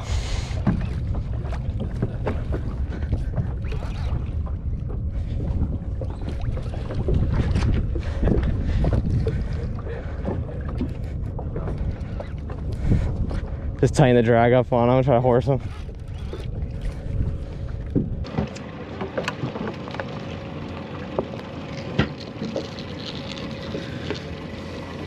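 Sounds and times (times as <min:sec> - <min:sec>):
wind on microphone: 0:00.0 - 0:18.3
boat engine running: 0:00.0 - 0:25.0.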